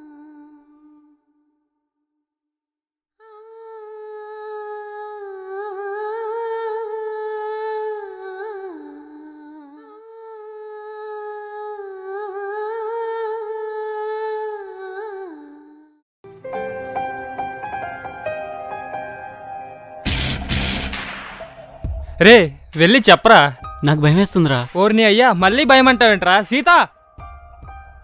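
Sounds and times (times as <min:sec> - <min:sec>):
woman humming a slow melody: 0:00.0 - 0:01.3, 0:03.2 - 0:16.0
instrumental music: 0:16.2 - 0:24.6.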